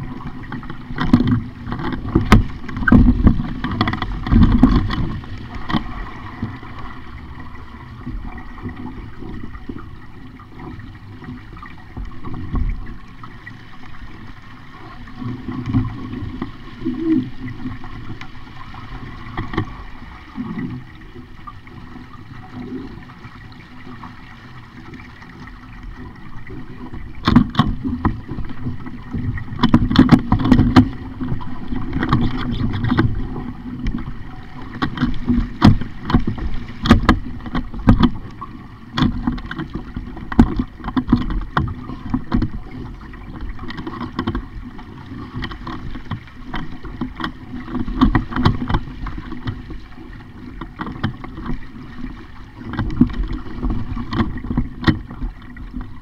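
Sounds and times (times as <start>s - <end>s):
water splashing against hull: 0.0s - 56.0s
wind on microphone: 26.0s - 56.0s.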